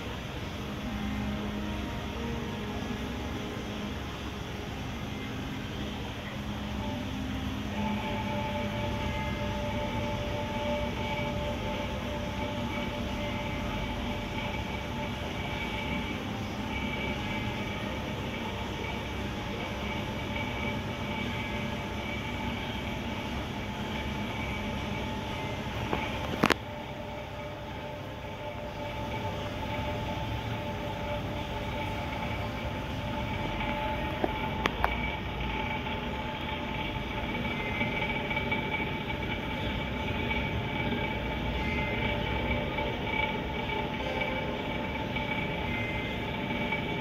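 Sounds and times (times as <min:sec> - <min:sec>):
aquarium tanks humming and hissing: 0:00.0 - 0:47.0
faint steady pump tones: 0:00.0 - 0:47.0.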